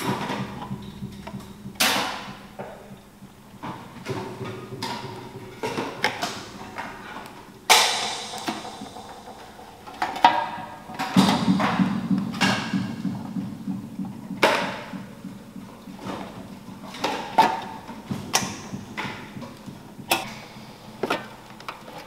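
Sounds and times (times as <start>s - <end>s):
knocks and clatters: 0.0s - 20.3s
low hum: 0.0s - 21.0s
sharp crash: 7.7s - 13.4s.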